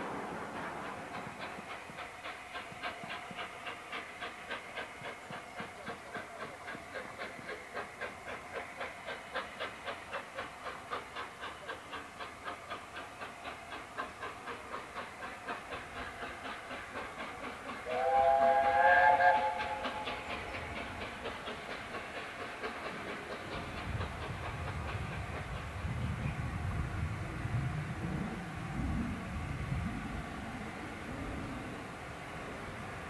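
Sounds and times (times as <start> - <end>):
train wheels clicking over rail joints: 0.0 - 29.7
steam locomotive whistle: 17.8 - 20.5.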